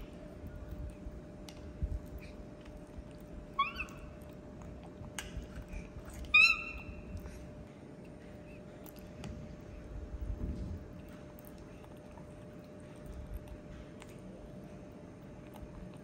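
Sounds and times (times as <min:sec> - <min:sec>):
baby monkey coo calls: 0:03.6 - 0:04.1, 0:06.2 - 0:07.0.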